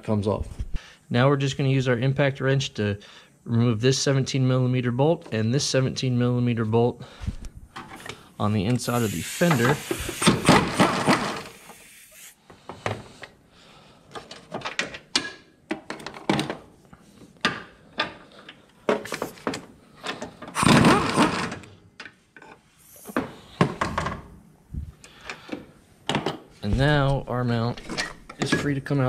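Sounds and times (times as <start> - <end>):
impact wrench spinning: 8.8 - 12.4
clunks and knocks of metal parts: 10.2 - 11.5, 14.1 - 24.3, 25.2 - 27.0, 27.6 - 28.8.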